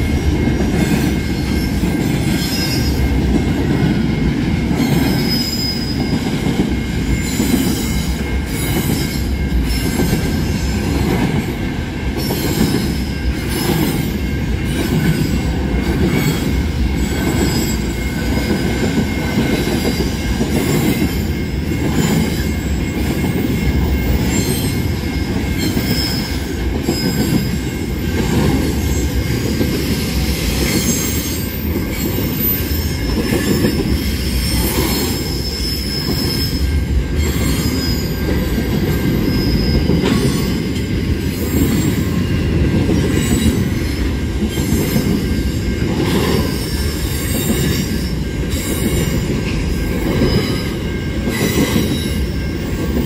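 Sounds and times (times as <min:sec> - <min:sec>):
freight train rumbling: 0:00.0 - 0:53.0
high wheel squeal: 0:04.8 - 0:06.2, 0:19.9 - 0:28.2, 0:29.9 - 0:40.7.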